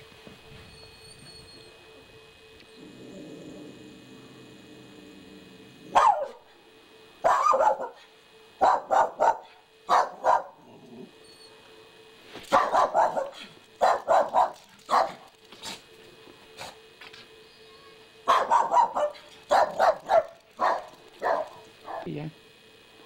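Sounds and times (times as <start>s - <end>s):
small dog barking: 5.9s - 6.4s, 7.2s - 8.0s, 8.6s - 10.6s, 12.5s - 15.2s, 18.2s - 22.1s.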